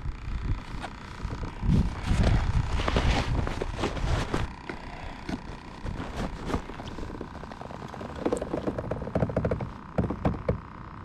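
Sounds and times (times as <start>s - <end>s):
handling knocks: 5.3s - 10.7s.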